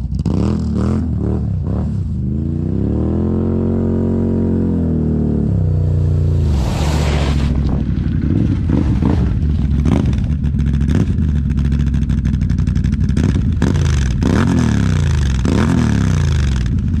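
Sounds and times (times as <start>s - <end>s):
quad engine idling and revving: 0.0s - 17.0s
short rush of noise: 6.0s - 9.5s.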